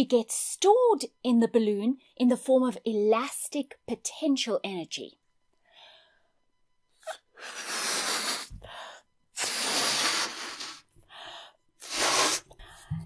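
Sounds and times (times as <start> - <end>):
person breathing in: 5.7 - 6.3, 7.1 - 13.0
breath blown into balloon: 7.0 - 10.9, 11.8 - 13.0.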